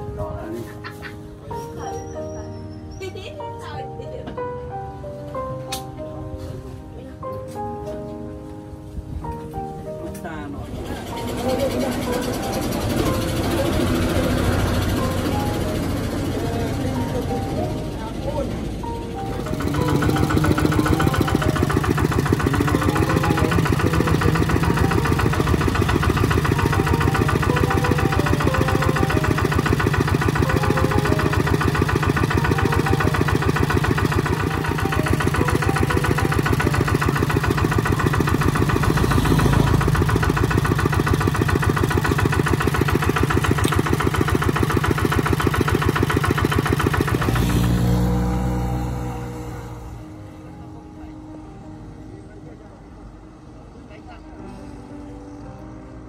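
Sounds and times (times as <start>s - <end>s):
diesel engine thudding: 12.1s - 49.4s.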